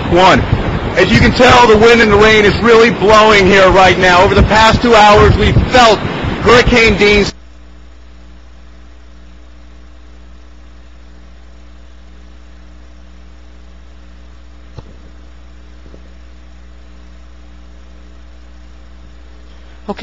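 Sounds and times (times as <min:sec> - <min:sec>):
even hiss: 0:00.0 - 0:07.4
electrical mains hum: 0:00.0 - 0:20.0.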